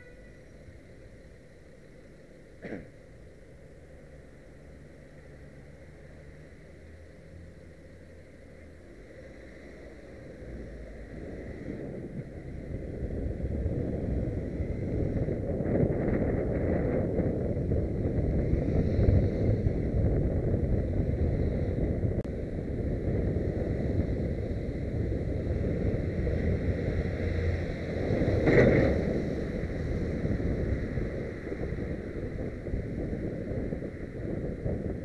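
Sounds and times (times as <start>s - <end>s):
road and traffic noise: 0.0s - 35.0s
wind buffeting microphone: 10.2s - 35.0s.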